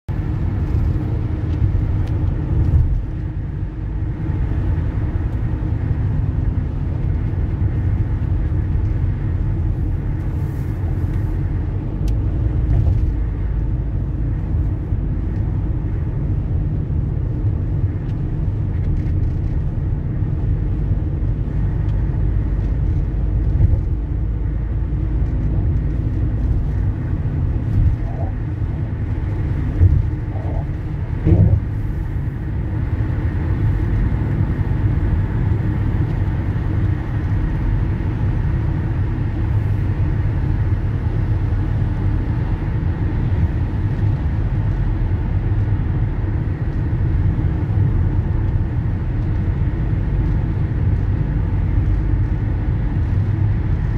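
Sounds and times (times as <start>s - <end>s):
car engine rumble: 0.1s - 53.9s
tyres on road: 0.1s - 53.9s
car bumps: 29.8s - 31.9s.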